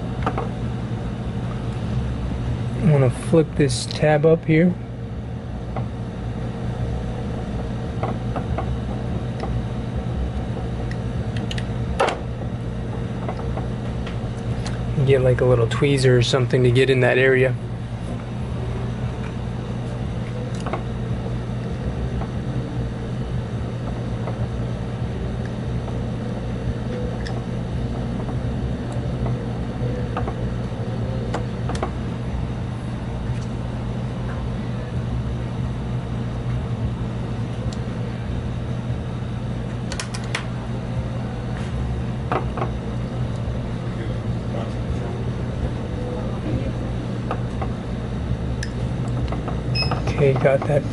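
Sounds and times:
steady low hum: 0:00.0 - 0:50.9.

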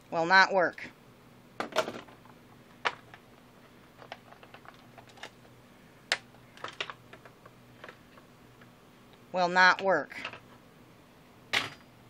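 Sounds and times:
tools clicking and knocking on table: 0:11.5 - 0:11.9.

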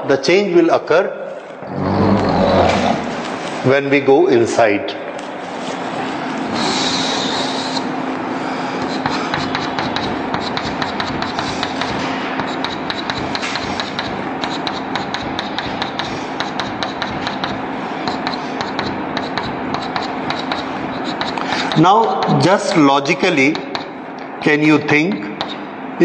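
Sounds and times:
steady low hum: 0:00.0 - 0:26.0
chalk scraping on blackboard: 0:06.6 - 0:07.9, 0:08.8 - 0:22.4
chalk tapping on blackboard: 0:08.8 - 0:22.5, 0:23.4 - 0:24.0, 0:25.1 - 0:25.6.

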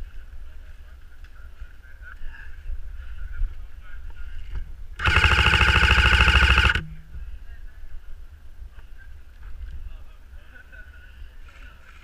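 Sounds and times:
motor and gearbox whirring: 0:05.0 - 0:06.9
electric rifle full-auto burst: 0:05.0 - 0:07.1
motor low hum: 0:05.0 - 0:07.3.

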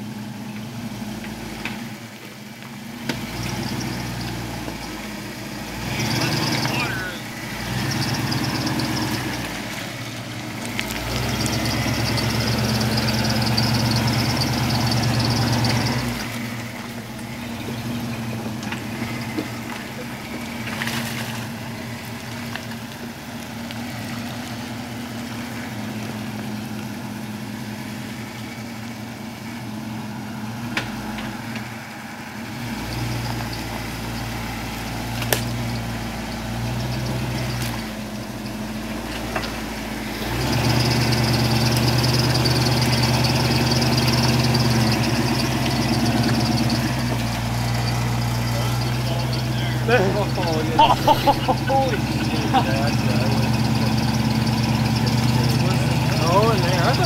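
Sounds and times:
truck engine revving: 0:00.0 - 0:57.0.

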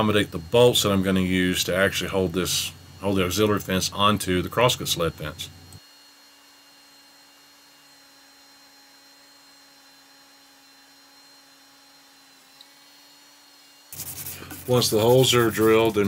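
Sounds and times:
thin high whine: 0:00.0 - 0:05.8, 0:13.9 - 0:16.0.

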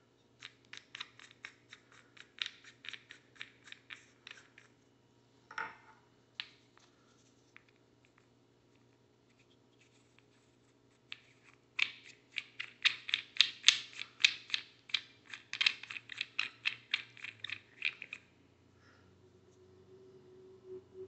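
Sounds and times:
wooden nut clicking on threads: 0:00.4 - 0:04.7, 0:11.1 - 0:18.3.

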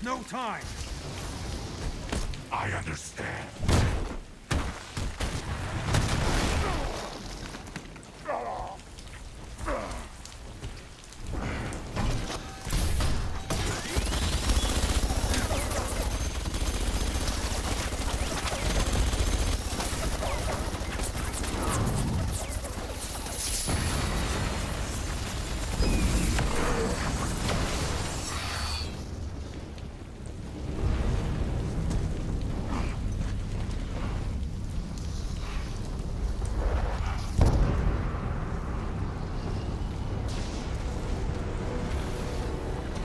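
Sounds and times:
explosions: 0:11.2 - 0:33.1, 0:36.4 - 0:41.3.

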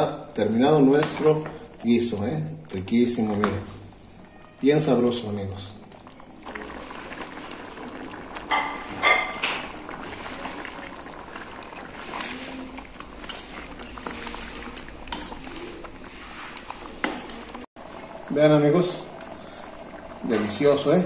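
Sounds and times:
stew bubbling in a pot: 0:00.0 - 0:21.0
metal spoon clinking on pot: 0:17.0 - 0:17.6.

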